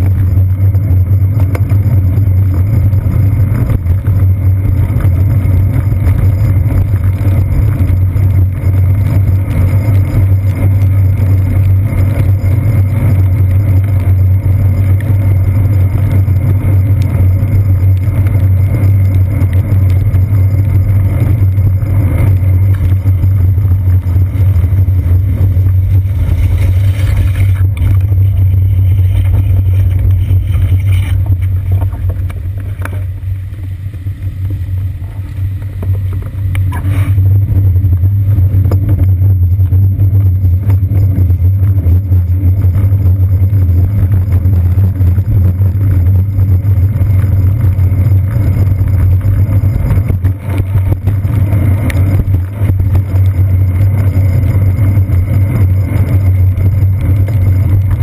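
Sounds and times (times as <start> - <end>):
road vibration rumble: 0.0 - 58.0
wind on camera: 0.0 - 58.0.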